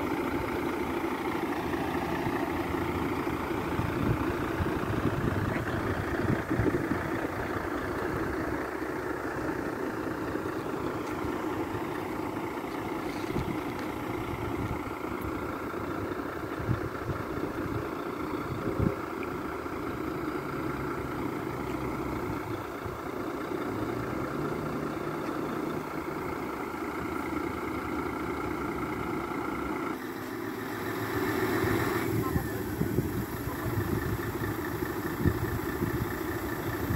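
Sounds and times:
diesel engine idling: 0.0s - 36.9s
thin steady whine: 29.0s - 36.9s.

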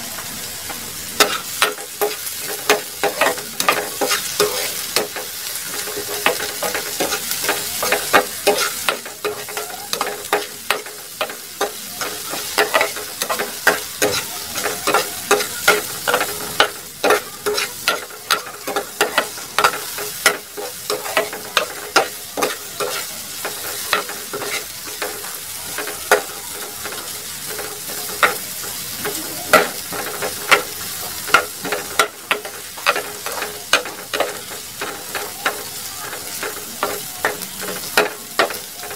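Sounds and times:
garlic and onion sizzling in oil: 0.0s - 38.9s
utensil scraping a pan: 1.2s - 26.3s.

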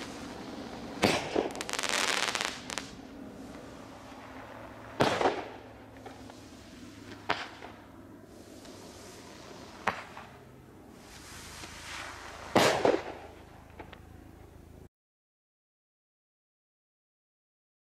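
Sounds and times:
firework bangs: 0.0s - 7.8s, 8.4s - 10.4s, 11.0s - 14.0s
crackling firework pops: 1.0s - 3.6s, 5.0s - 6.5s, 7.1s - 7.8s, 9.7s - 10.3s, 11.1s - 14.0s.

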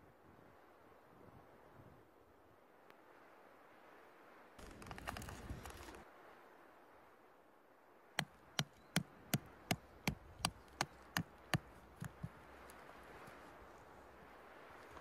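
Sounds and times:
rock striking metal tent stake: 8.2s - 12.4s.

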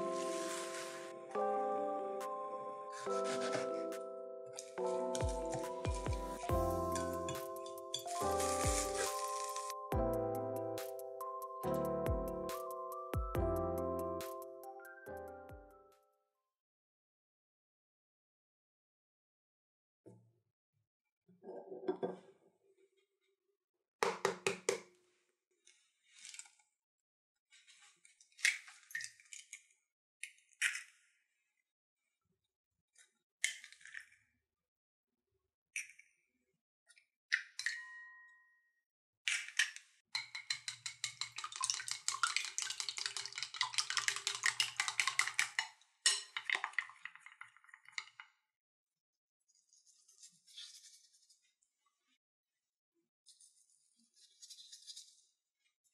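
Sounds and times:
eggshell crackling: 6.3s - 9.9s, 40.8s - 45.6s, 46.3s - 48.2s
whisk clicking against bowl: 40.2s - 45.7s.

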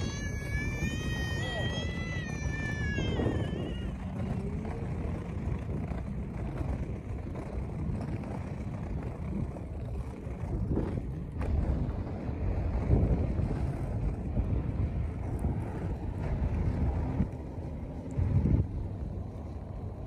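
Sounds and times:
wind buffeting microphone: 0.0s - 20.0s.

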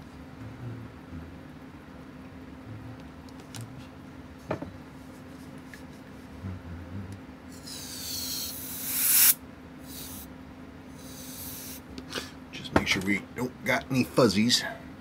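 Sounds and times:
air blower hissing: 7.5s - 10.3s, 11.0s - 12.2s.

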